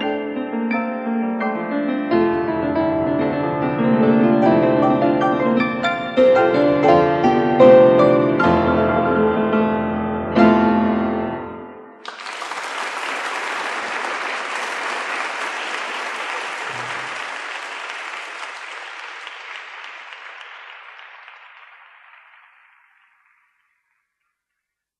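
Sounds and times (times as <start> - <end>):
audience applause: 12.0 - 24.0.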